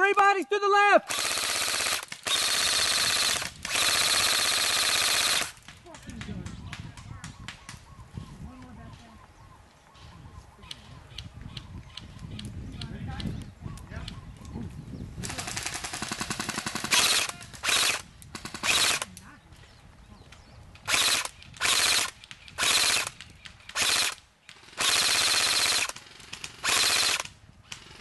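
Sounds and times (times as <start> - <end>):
airsoft rifle firing bursts: 1.1 - 5.6, 15.2 - 19.1, 20.8 - 28.0.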